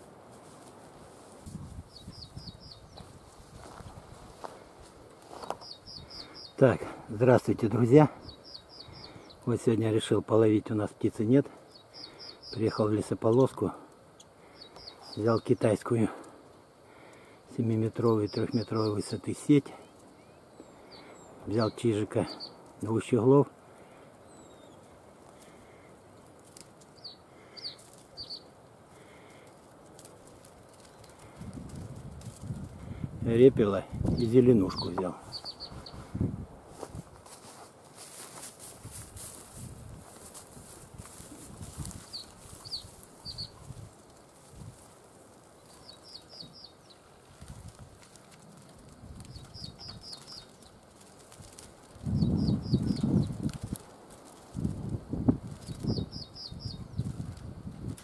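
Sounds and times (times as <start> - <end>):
rustling: 0.0 - 6.4, 23.7 - 33.0, 33.9 - 56.1
footsteps crunching dry grass: 0.0 - 7.0, 27.7 - 28.2, 28.9 - 56.1
faint outdoor hiss: 0.0 - 58.0
finches chirping: 1.9 - 3.2, 5.3 - 6.8, 7.7 - 9.5, 11.7 - 13.2, 14.1 - 15.8, 17.9 - 19.4, 20.1 - 22.7, 24.2 - 24.8, 26.9 - 28.5, 34.1 - 36.2, 42.0 - 43.7, 45.5 - 47.2, 49.3 - 50.8, 52.1 - 53.5, 55.5 - 57.2.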